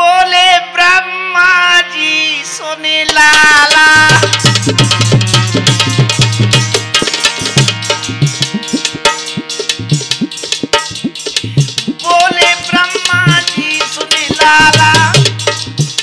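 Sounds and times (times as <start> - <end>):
folk melody instrument: 2.6 - 16.0
hand drum fast rhythm: 3.4 - 16.0.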